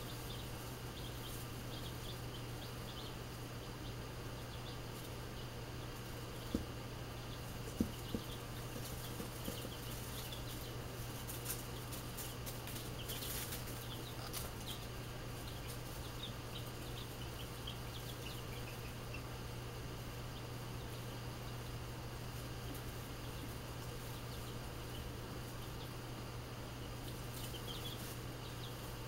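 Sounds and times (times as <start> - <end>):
chicks peeping: 0.0 - 29.0
steady low hum: 0.0 - 29.0
rustling of wood shavings: 7.5 - 16.8.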